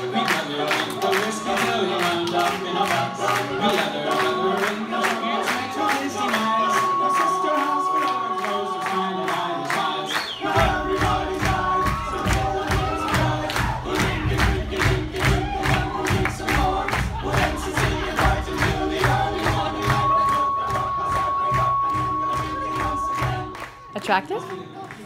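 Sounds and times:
male vocal group singing: 0.0 - 25.0
steady beat: 10.5 - 24.2.

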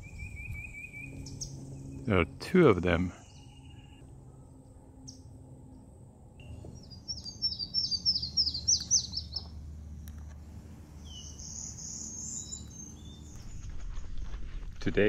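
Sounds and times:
bird whistled notes: 0.0 - 2.0, 3.2 - 4.0, 6.4 - 9.4, 11.0 - 13.3
higher buzzy bird song: 0.0 - 13.6.

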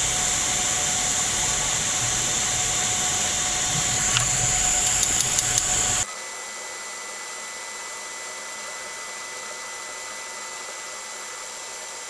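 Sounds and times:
faint high whines: 0.0 - 6.1
welding arc hissing: 0.0 - 6.1.

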